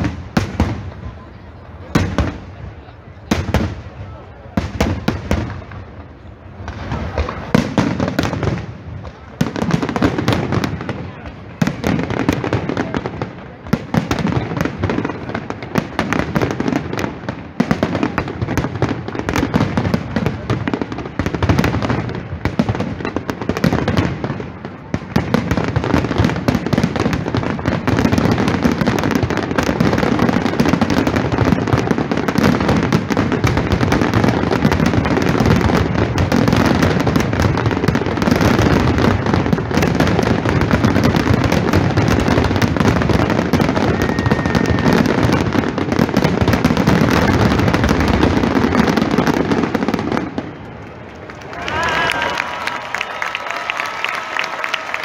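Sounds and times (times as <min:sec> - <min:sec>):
fireworks bangs and crackling: 0:00.0 - 0:55.0.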